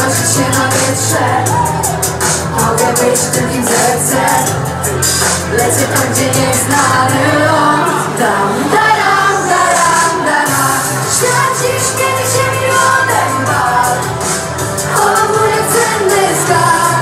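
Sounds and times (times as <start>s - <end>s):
woman singing into microphone: 0.0s - 4.7s, 5.4s - 17.0s
backing track with beat: 0.0s - 17.0s.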